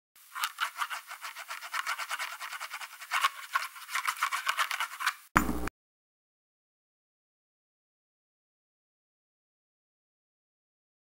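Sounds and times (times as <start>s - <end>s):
pen scratching on paper: 0.4s - 5.2s.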